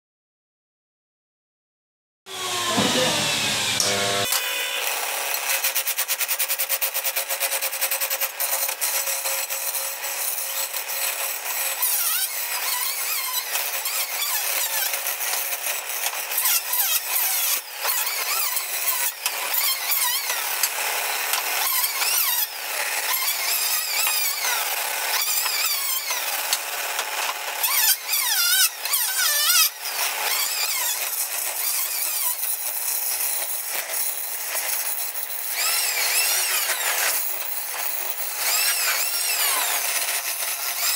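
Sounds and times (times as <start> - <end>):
tool squealing on wood: 2.3 - 4.4, 9.4 - 40.9
chisel scraping spinning wood: 2.4 - 4.4, 8.3 - 32.4, 35.6 - 40.9.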